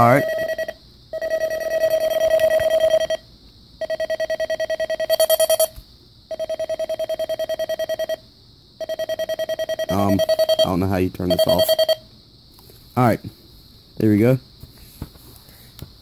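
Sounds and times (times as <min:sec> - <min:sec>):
weather radio alert beeping: 0:00.0 - 0:03.2, 0:08.8 - 0:12.0.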